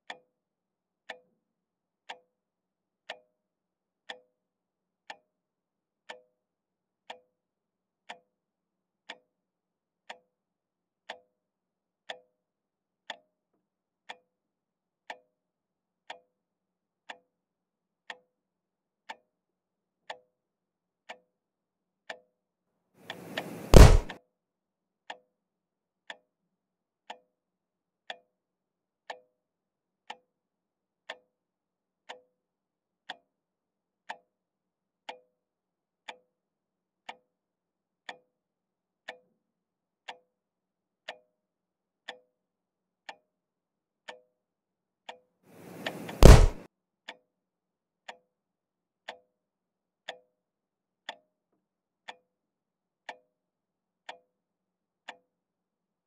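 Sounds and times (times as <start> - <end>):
heavy thump: 23.2 - 24.2, 45.6 - 46.6.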